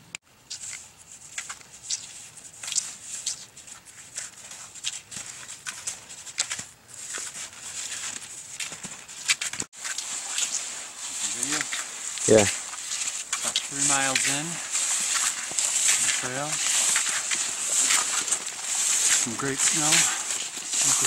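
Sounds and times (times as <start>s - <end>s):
skis crunching on snow: 0.5s - 21.0s
steady high hiss: 10.2s - 21.0s.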